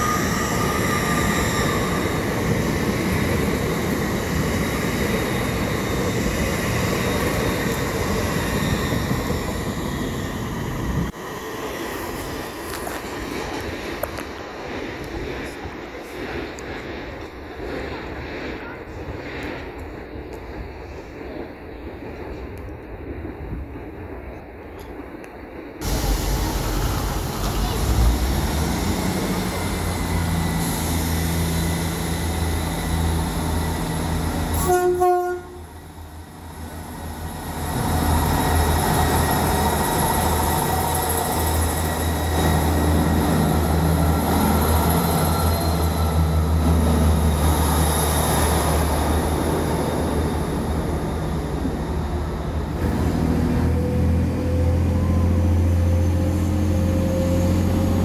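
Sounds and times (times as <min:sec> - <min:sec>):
diesel train engines droning: 0:00.0 - 0:20.2, 0:25.8 - 0:58.0
engine whine rising: 0:25.8 - 0:34.5
train horn toot: 0:34.4 - 0:35.8.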